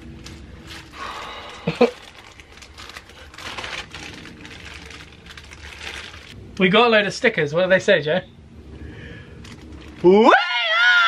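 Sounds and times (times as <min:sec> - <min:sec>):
plastic bag crinkling: 0:00.0 - 0:06.4, 0:09.4 - 0:10.1.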